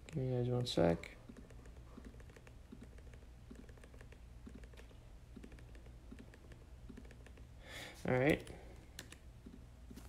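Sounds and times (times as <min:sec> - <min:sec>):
low steady hum: 0:00.0 - 0:10.0
laptop keyboard typing: 0:01.2 - 0:07.5, 0:08.3 - 0:10.0.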